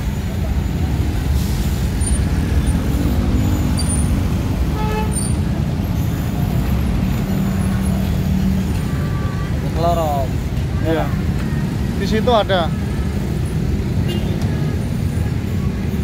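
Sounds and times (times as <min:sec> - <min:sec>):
traffic engines rumbling: 0:00.0 - 0:16.0.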